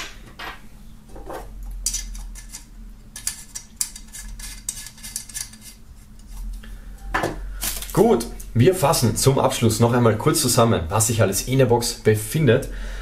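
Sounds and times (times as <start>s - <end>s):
metal screw cap clicking and scraping: 1.8s - 5.8s.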